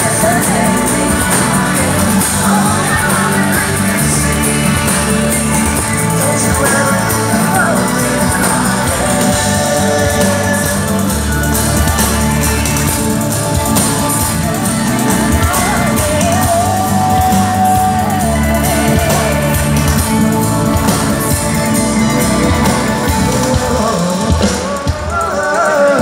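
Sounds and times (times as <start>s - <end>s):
live pop band playing: 0.0s - 26.0s
person singing: 0.0s - 26.0s.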